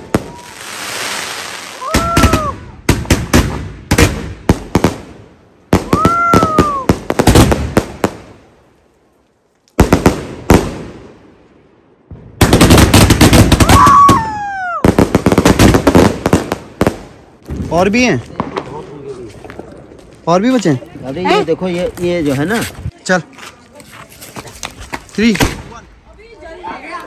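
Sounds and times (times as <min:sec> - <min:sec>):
firework whistling: 0:00.0 - 0:02.7
firework bangs and crackles: 0:00.0 - 0:09.0, 0:09.7 - 0:22.8, 0:24.6 - 0:26.0.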